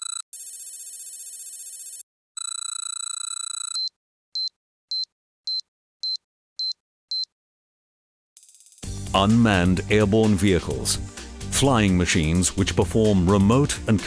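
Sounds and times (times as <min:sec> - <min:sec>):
short high beeps: 0:03.3 - 0:07.3.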